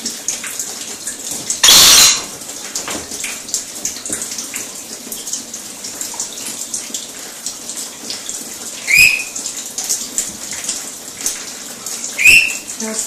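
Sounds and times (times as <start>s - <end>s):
parrot shrill call: 1.6s - 2.3s, 8.9s - 9.4s, 12.2s - 12.6s
shower spray hissing: 1.6s - 2.3s.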